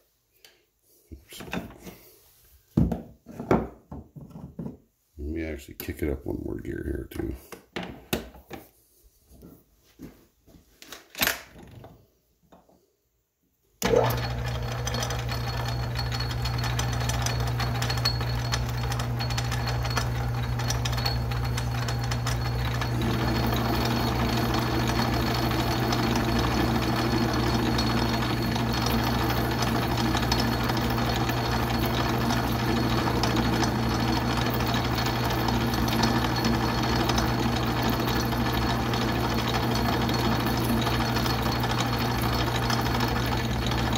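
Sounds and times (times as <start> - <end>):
lathe gearing clicks: 13.8 - 43.9
lathe running with low hum: 13.8 - 43.9.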